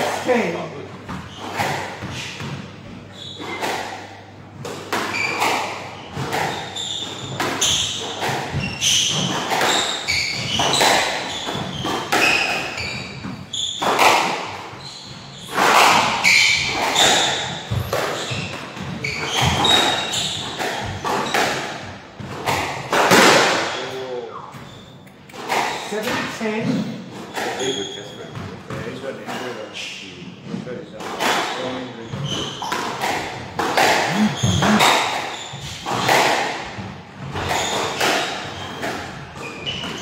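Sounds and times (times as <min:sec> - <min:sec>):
shoes squeaking on wooden floor: 0:05.1 - 0:14.0, 0:16.2 - 0:21.5, 0:32.0 - 0:36.2.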